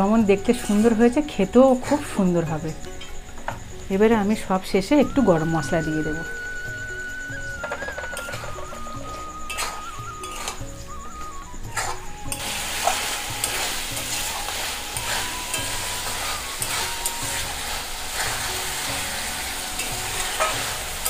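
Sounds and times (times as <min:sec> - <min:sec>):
curry sizzling: 0:00.0 - 0:21.0
spatula scraping metal pan: 0:09.5 - 0:10.6, 0:11.7 - 0:21.0.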